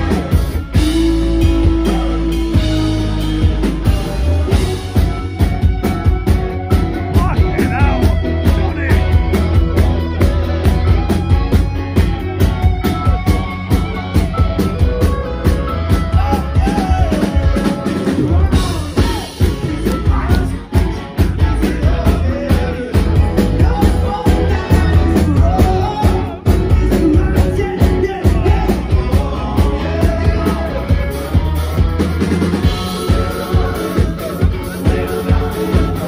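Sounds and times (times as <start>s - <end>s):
person singing: 0.0s - 3.2s, 15.8s - 31.6s
drum kit beat: 0.0s - 36.0s
electric guitars: 0.0s - 36.0s
rock band playing: 0.0s - 36.0s.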